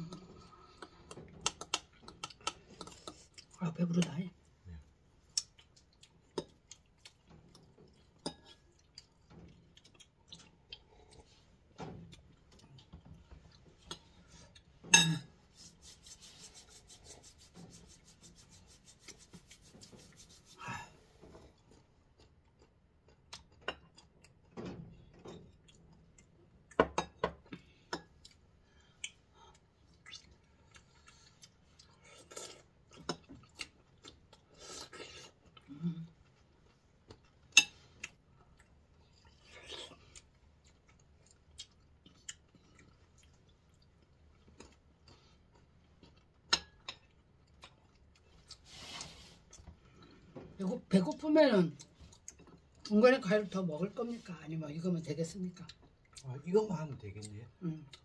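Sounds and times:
palms rubbing together: 15.5 - 20.7.

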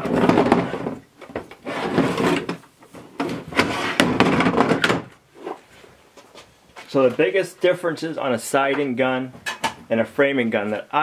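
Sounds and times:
tools clattering on metal shelf: 9.4 - 9.8.

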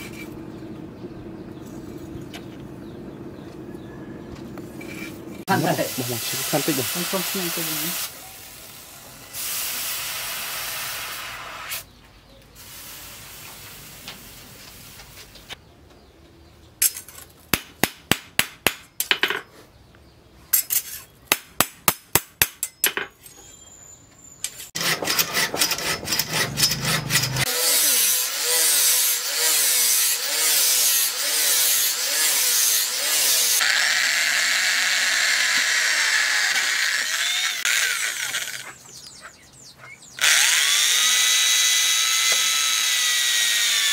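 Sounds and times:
sawing wood: 4.7 - 8.1, 24.6 - 39.3, 40.2 - 43.9
steam hissing: 5.5 - 11.8.

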